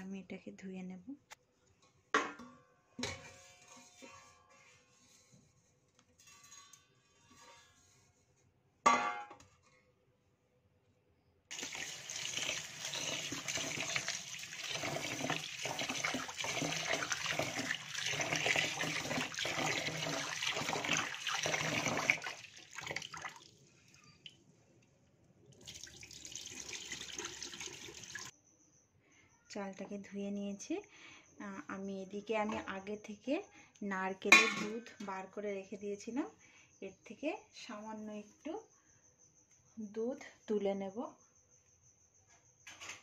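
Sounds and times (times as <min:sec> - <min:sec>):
tap water running into pot: 0:11.5 - 0:23.5, 0:25.6 - 0:28.3
water pouring into sink: 0:11.5 - 0:24.4, 0:25.6 - 0:28.3.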